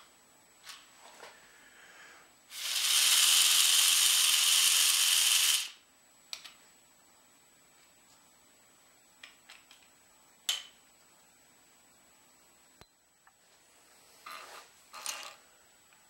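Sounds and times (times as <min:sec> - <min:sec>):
air motor rattling buzz: 0:02.5 - 0:05.8.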